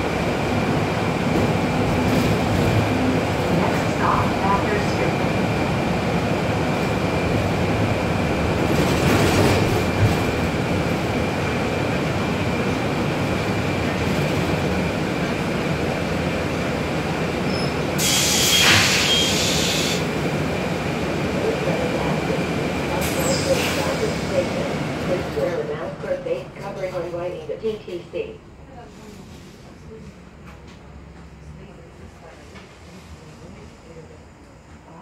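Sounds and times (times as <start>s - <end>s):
bus engine and road rumble: 0.0s - 35.0s
hiss of air: 18.0s - 20.0s.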